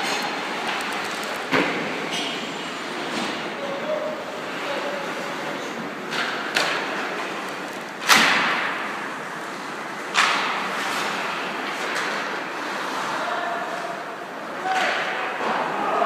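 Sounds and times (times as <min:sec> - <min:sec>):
steady background noise: 0:00.0 - 0:16.0.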